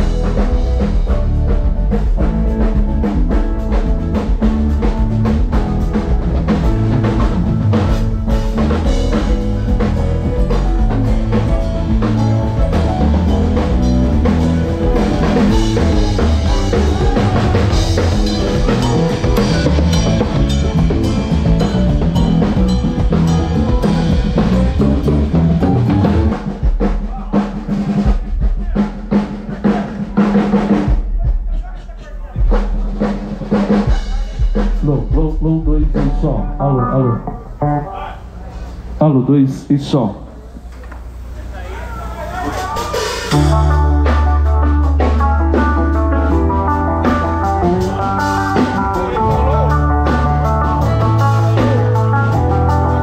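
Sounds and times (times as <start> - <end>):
drum kit hits: 0.0 - 39.0, 42.3 - 53.0
live band playing: 0.0 - 40.4, 41.0 - 53.0.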